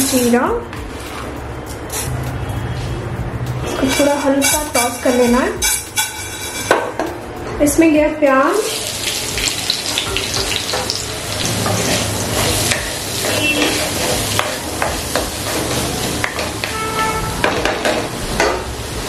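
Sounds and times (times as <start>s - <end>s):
spatula scraping a pan: 3.7s - 6.7s, 11.5s - 14.6s
onion sizzling in a pan: 8.6s - 19.0s.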